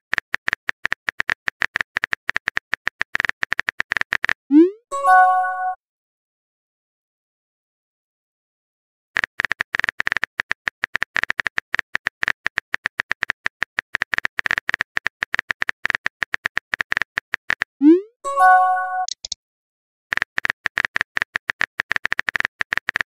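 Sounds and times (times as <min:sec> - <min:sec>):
message sent chime: 0:04.6 - 0:05.8, 0:17.8 - 0:19.2.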